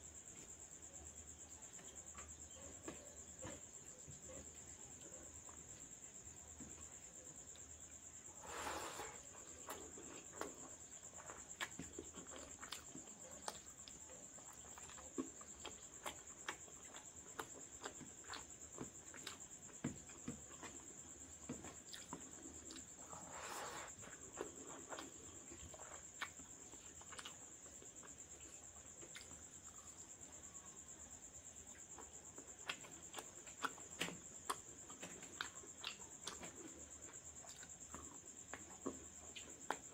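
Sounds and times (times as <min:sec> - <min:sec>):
eating and chewing clicks: 0:09.4 - 0:21.1, 0:24.1 - 0:29.8, 0:31.8 - 0:39.9.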